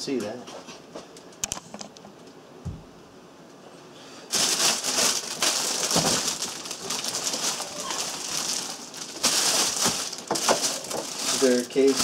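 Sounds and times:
plastic bag crinkling: 4.3s - 12.0s.

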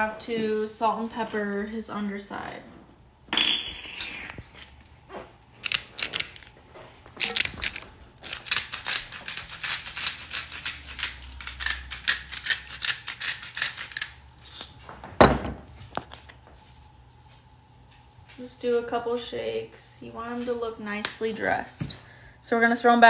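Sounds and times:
shakers rattling: 7.2s - 14.2s.

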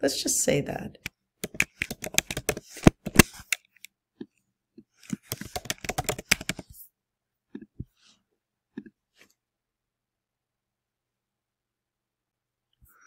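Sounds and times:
typing on computer keyboard: 1.4s - 3.6s, 5.1s - 6.7s.

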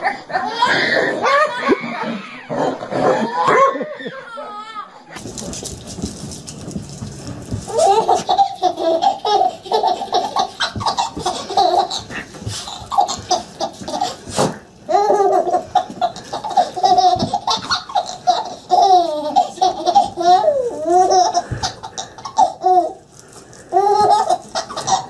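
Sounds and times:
baby laughing: 7.7s - 14.3s, 14.9s - 23.0s, 23.7s - 25.0s.

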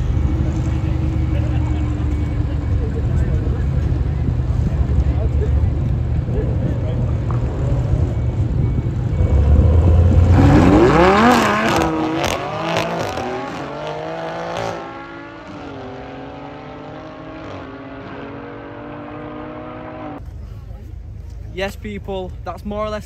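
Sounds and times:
car accelerating hard: 9.1s - 20.2s.

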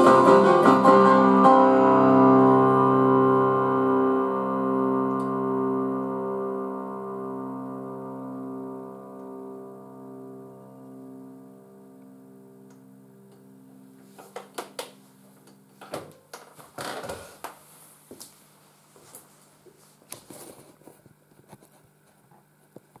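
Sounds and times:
electronic keyboard chord: 0.0s - 15.8s.

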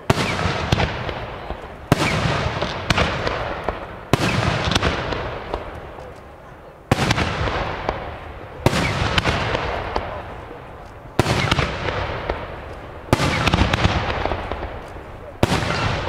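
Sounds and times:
echo of bangs: 0.0s - 5.8s, 6.9s - 10.5s, 11.1s - 16.0s
firework shells bursting: 6.9s - 16.0s.

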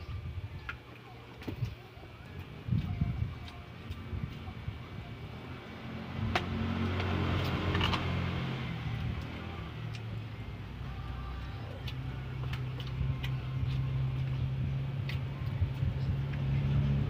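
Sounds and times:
motor vehicle passing: 3.8s - 17.0s.

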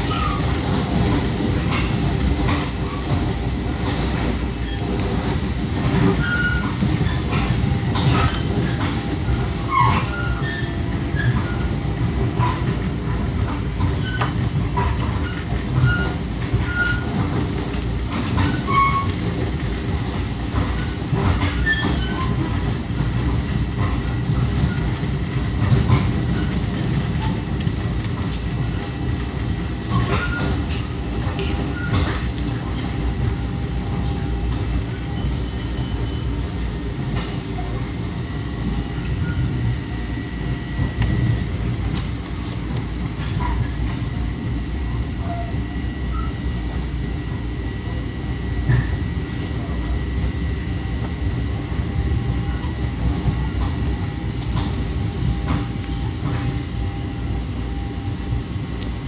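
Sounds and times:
train rumbling: 0.0s - 59.0s
wheel squeals: 5.9s - 12.7s, 15.2s - 17.4s, 18.3s - 19.3s, 20.0s - 23.0s, 29.9s - 36.4s.

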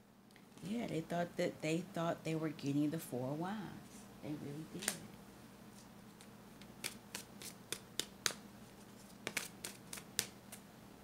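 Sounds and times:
cards snapping and slapping: 4.8s - 5.0s, 6.2s - 10.6s.

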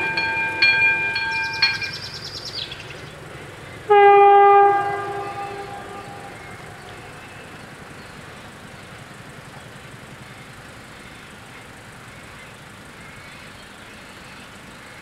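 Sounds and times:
level crossing bells ringing: 0.0s - 3.0s
train horn: 3.9s - 7.0s.

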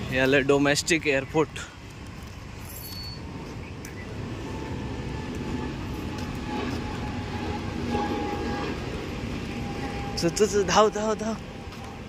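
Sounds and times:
vehicle engines rumbling: 0.0s - 12.0s.

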